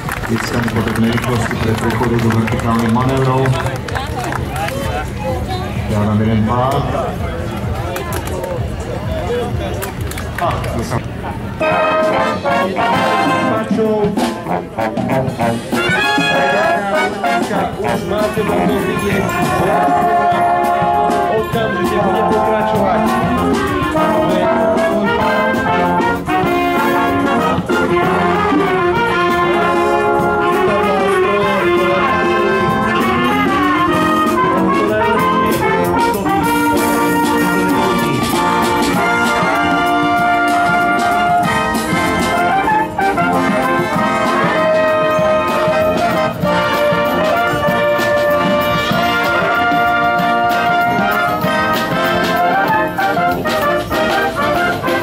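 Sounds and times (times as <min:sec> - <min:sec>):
brass band playing: 0:00.0 - 0:07.8, 0:10.4 - 0:55.0.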